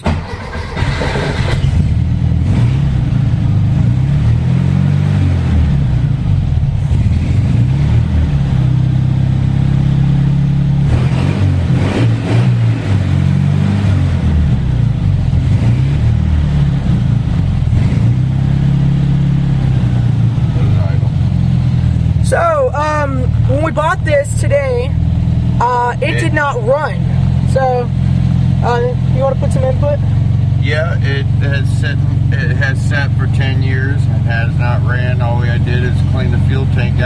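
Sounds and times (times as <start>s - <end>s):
car starter cranking: 0.0s - 1.9s
car engine revving: 0.0s - 37.0s.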